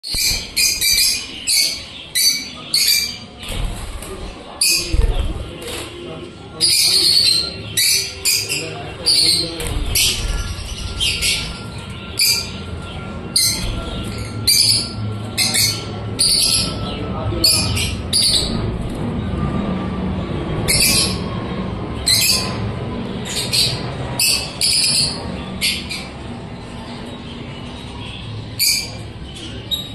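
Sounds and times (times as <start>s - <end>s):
lovebirds chirping: 0.0s - 18.6s.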